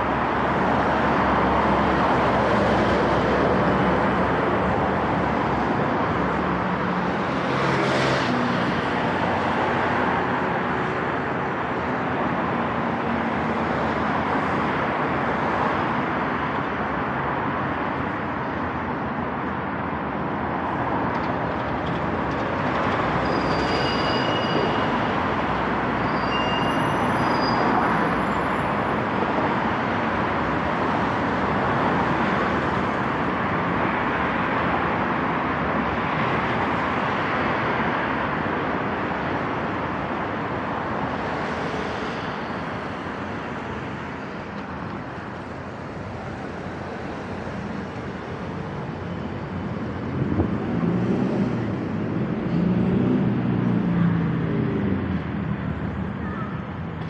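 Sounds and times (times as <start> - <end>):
road traffic noise: 0.0 - 57.0
short high-pitched squeals: 23.2 - 25.0, 26.0 - 27.8.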